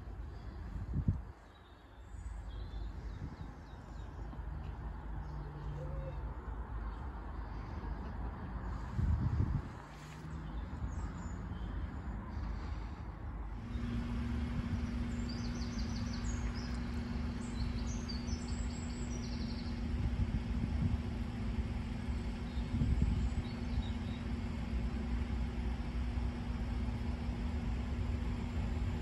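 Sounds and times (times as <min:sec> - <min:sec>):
wind rumbling on microphone: 0:00.0 - 0:01.5, 0:02.2 - 0:04.1, 0:07.4 - 0:11.5, 0:13.6 - 0:24.9
steady low hum: 0:00.0 - 0:05.4, 0:06.2 - 0:29.0
birds chirping: 0:00.0 - 0:09.0, 0:10.2 - 0:13.0, 0:13.6 - 0:27.4.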